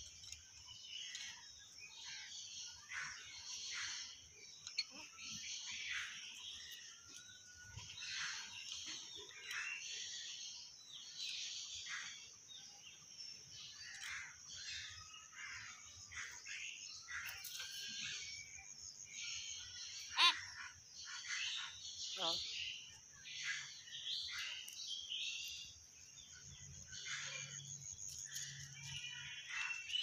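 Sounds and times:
bird chirps and rasping calls: 0:13.7 - 0:25.8.

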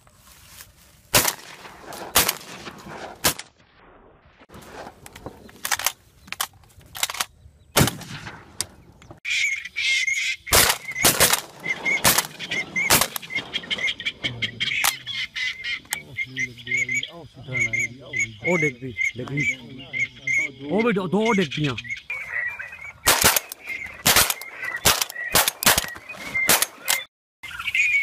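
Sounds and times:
shotgun shots: 0:01.1 - 0:04.9, 0:07.8 - 0:08.6, 0:10.5 - 0:13.9, 0:23.0 - 0:27.0
waterfowl calling: 0:09.2 - 0:28.0.

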